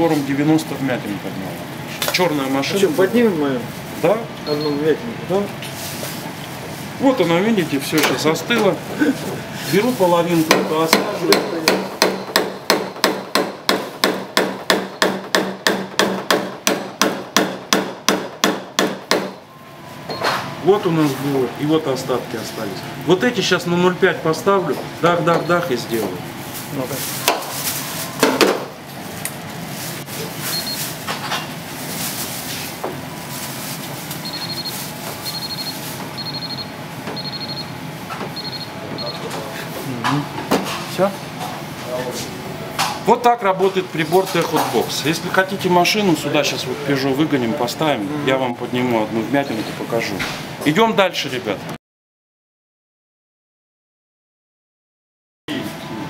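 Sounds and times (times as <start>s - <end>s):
short high beeps: 4.4s - 4.9s, 30.5s - 30.9s, 34.2s - 37.7s, 38.4s - 39.2s.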